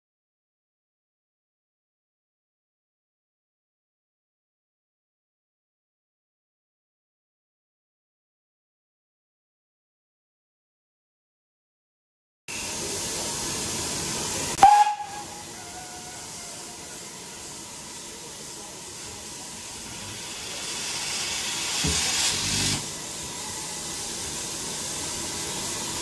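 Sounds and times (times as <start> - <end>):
locomotive steam hissing: 12.5 - 26.0
steam whistle blast: 14.4 - 17.9.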